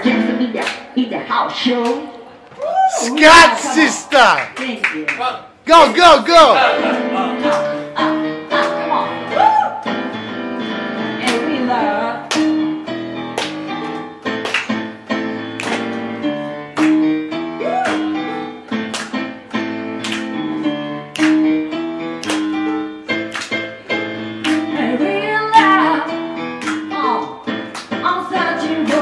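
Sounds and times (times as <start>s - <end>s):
keyboard chords over a beat: 6.6s - 29.0s.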